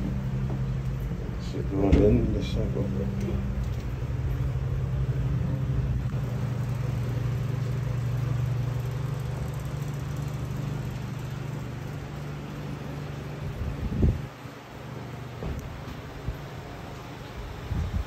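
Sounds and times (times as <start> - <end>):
held low tones: 0.0 - 14.4
low machine hum: 0.0 - 18.0.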